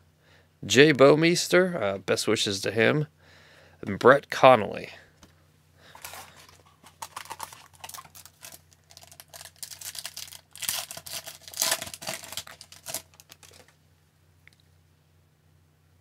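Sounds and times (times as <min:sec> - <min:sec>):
foil wrapper tearing and crinkling: 0:06.0 - 0:13.8.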